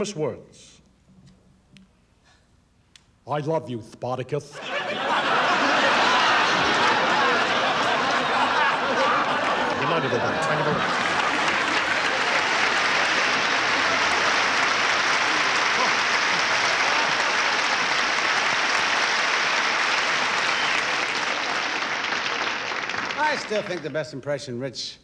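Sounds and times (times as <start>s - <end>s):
audience applauding: 4.6s - 24.1s.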